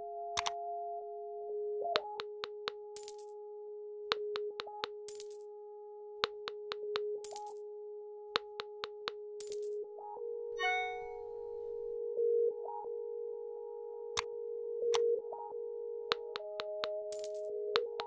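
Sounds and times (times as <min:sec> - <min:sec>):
coin-like jingles: 0:02.5 - 0:03.3, 0:04.8 - 0:05.4, 0:07.2 - 0:07.6, 0:09.4 - 0:09.7, 0:10.6 - 0:11.3, 0:17.2 - 0:17.5.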